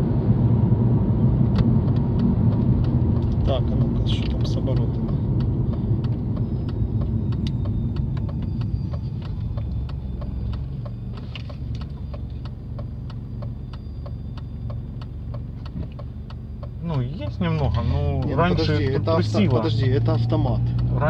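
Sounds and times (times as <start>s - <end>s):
car engine at low revs: 0.0s - 21.0s
steady ticking: 1.6s - 21.0s.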